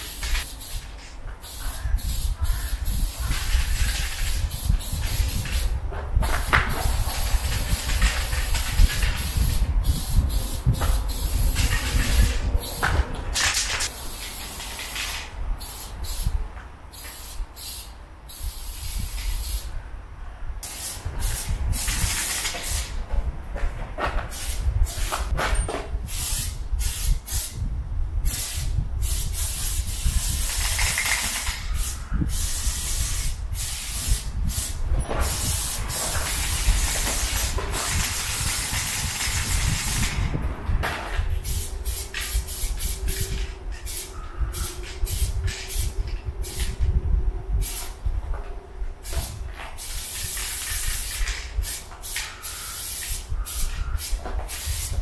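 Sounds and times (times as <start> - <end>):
aerosol spray can hissing: 28.3 - 40.2, 41.4 - 46.8.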